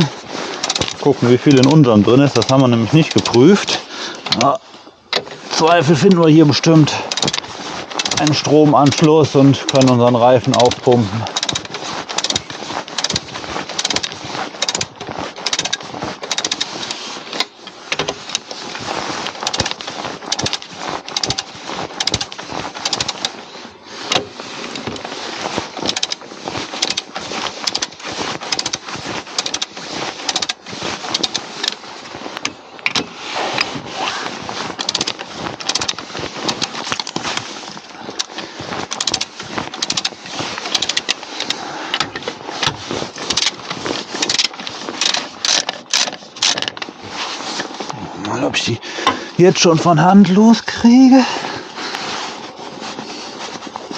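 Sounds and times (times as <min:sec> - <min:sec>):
hand tools clicking and rattling: 0:00.0 - 0:23.4, 0:24.0 - 0:47.0.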